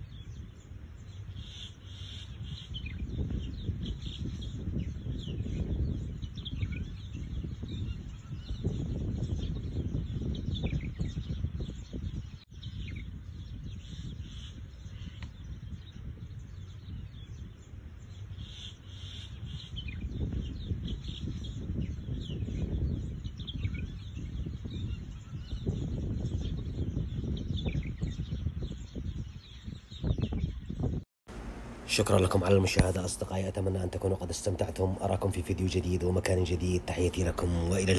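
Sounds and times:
small birds chirping: 0:00.0 - 0:31.0, 0:31.8 - 0:37.9
low rumbling background noise: 0:31.3 - 0:37.9.

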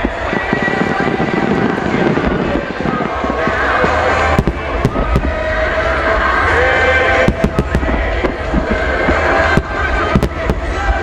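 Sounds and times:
fireworks bangs: 0:00.0 - 0:11.0
low rumble: 0:00.0 - 0:11.0
music playing: 0:00.0 - 0:11.0.

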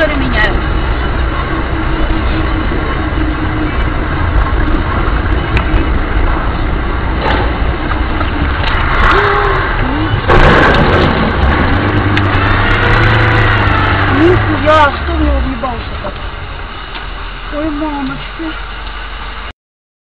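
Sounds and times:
car road and engine noise: 0:00.0 - 0:19.5
loud crash: 0:04.3 - 0:17.5.

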